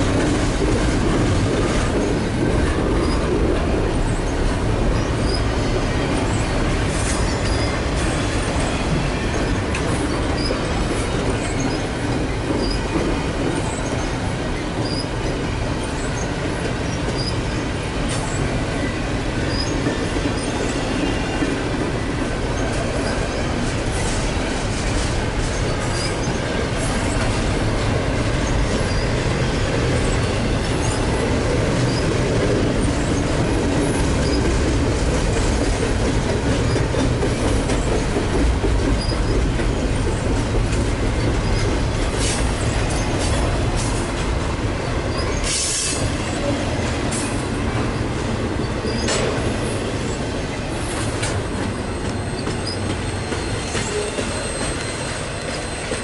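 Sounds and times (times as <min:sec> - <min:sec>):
train wheels rumbling on rails: 0:00.0 - 0:56.0
high-pitched wheel squeals: 0:14.8 - 0:15.1, 0:28.8 - 0:29.2, 0:51.7 - 0:56.0.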